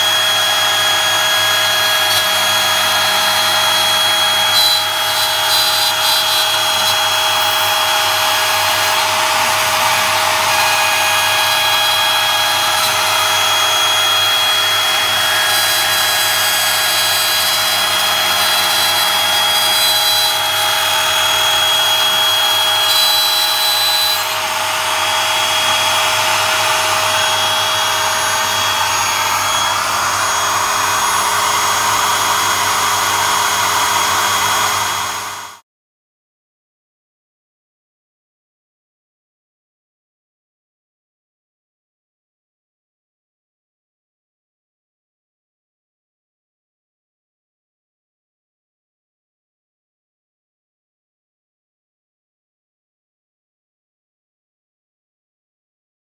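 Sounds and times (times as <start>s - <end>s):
bit cutting wood: 0.0s - 35.0s
router motor whine: 0.0s - 35.6s.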